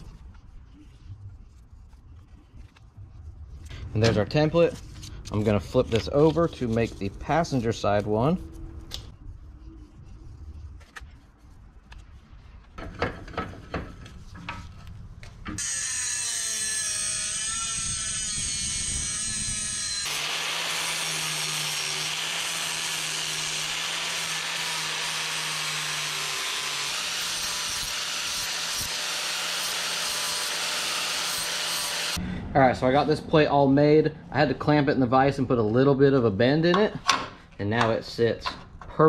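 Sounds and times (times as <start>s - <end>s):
angle grinder cutting sheet metal: 15.6s - 32.2s.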